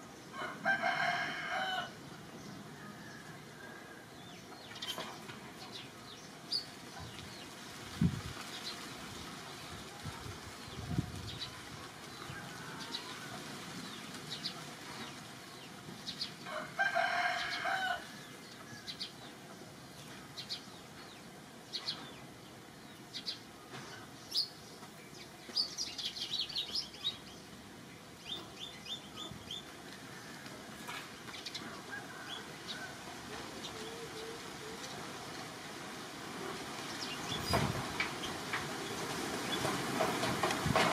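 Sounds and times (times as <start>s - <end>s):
birds chirping: 17.2s - 30.3s.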